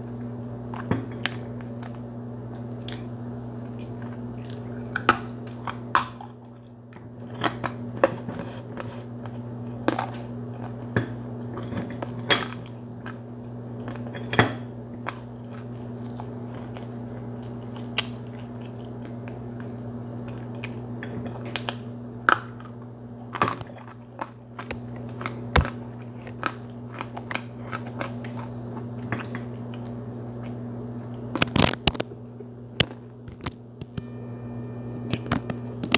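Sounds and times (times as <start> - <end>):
steady low hum: 0.0 - 35.9
clay being crunched and chewed: 0.8 - 11.0, 15.0 - 32.2.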